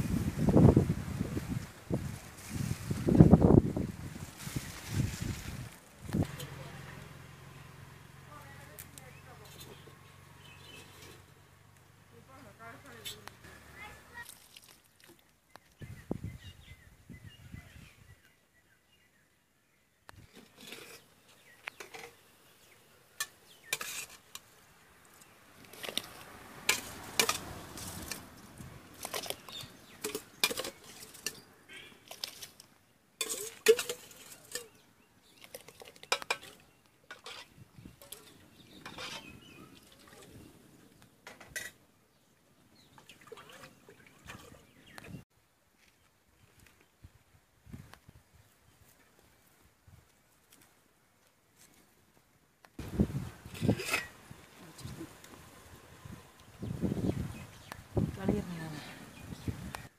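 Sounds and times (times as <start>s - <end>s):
ladle clinking metal pots: 25.7s - 28.2s, 29.0s - 31.4s, 33.2s - 34.8s, 35.4s - 39.4s.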